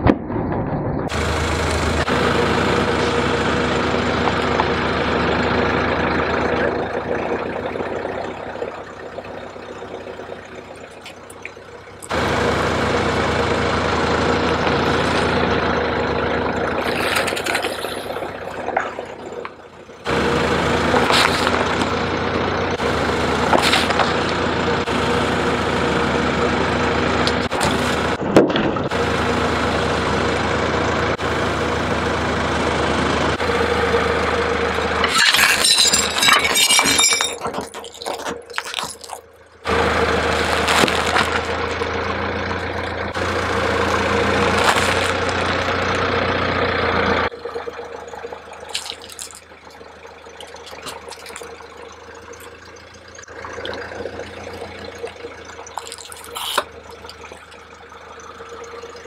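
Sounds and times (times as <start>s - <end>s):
car engine idling: 0.9s - 59.0s
tyre crushing food packets: 37.2s - 39.3s, 40.3s - 41.8s, 44.4s - 45.4s, 48.6s - 49.4s, 50.4s - 51.5s, 55.7s - 56.7s.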